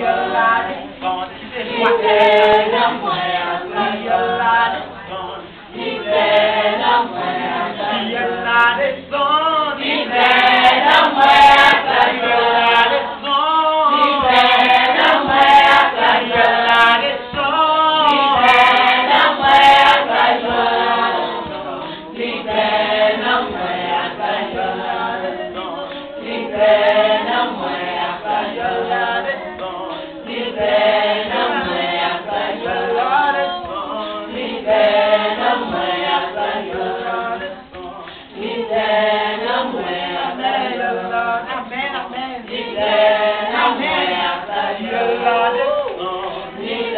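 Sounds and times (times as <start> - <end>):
women singing unaccompanied: 0.0 - 46.9
hand clapping: 25.6 - 26.2.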